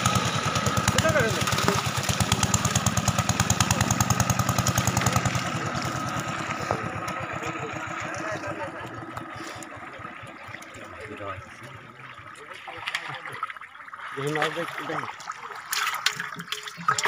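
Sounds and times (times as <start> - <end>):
small engine chugging: 0.0 - 12.6.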